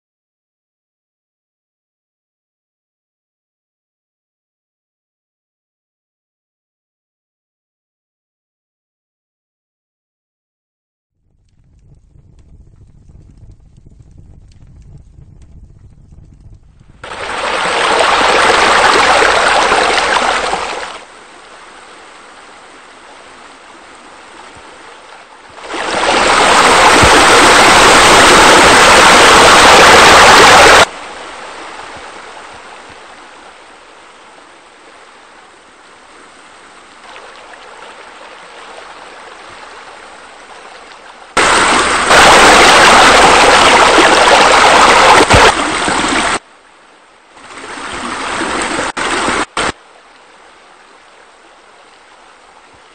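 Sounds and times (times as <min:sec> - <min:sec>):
water rushing and splashing: 0:17.0 - 0:52.9.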